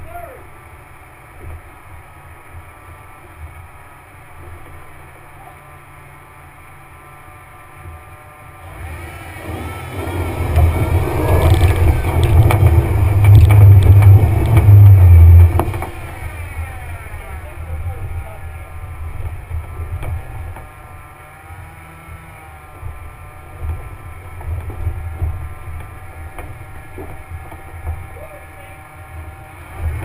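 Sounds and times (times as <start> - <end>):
tires spinning in mud: 7.8 - 30.0
car engine revving: 8.6 - 30.0.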